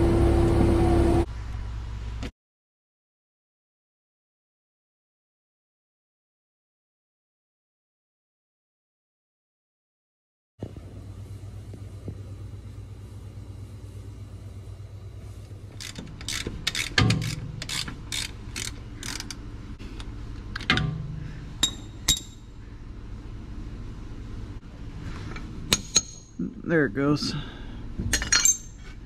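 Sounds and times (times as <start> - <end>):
ratchet wrench clicking: 15.8 - 19.4
metallic clinks: 21.6 - 22.5.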